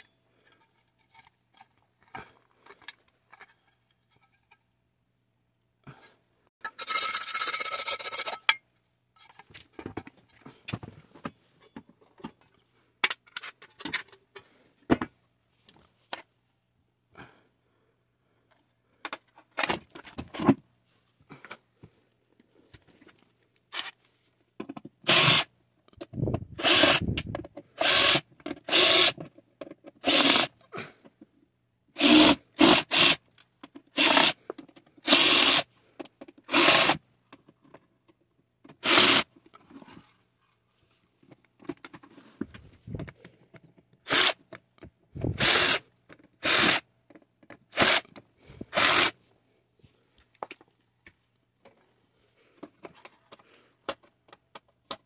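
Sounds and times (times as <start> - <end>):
cordless drill bursts: 25.0 - 25.5, 26.6 - 27.1, 27.8 - 29.2, 30.0 - 30.5, 32.0 - 33.2, 34.0 - 34.4, 35.0 - 35.7, 36.5 - 37.0, 38.8 - 39.3, 44.1 - 44.4, 45.3 - 45.8, 46.4 - 46.8, 47.7 - 48.0, 48.7 - 49.2.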